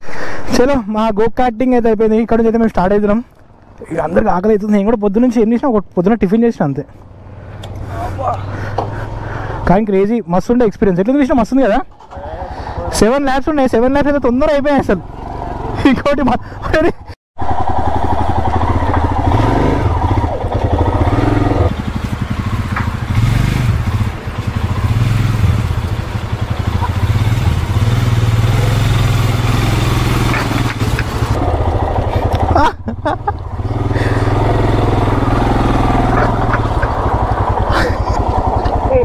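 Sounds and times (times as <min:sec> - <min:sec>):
motorcycle engine running: 0:17.4 - 0:39.0.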